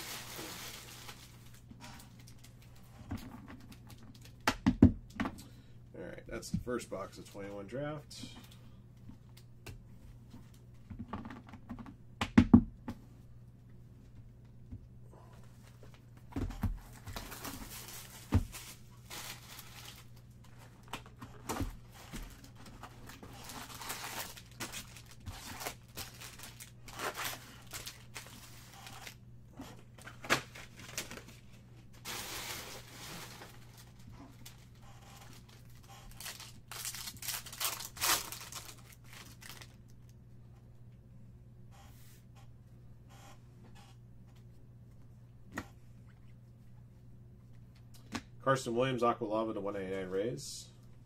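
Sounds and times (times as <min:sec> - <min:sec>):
foil wrappers tearing and crinkling: 0:00.0 - 0:02.7, 0:16.9 - 0:20.2, 0:22.4 - 0:29.2, 0:30.4 - 0:31.4, 0:32.0 - 0:39.8
low steady hum: 0:00.0 - 0:51.0
cards rustling: 0:22.2 - 0:29.2, 0:30.0 - 0:39.8.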